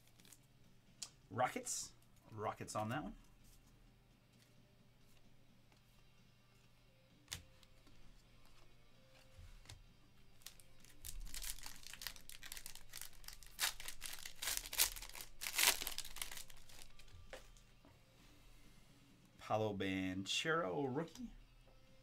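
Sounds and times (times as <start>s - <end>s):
plastic wrapper tearing and crinkling: 0.0s - 0.4s, 10.4s - 17.1s.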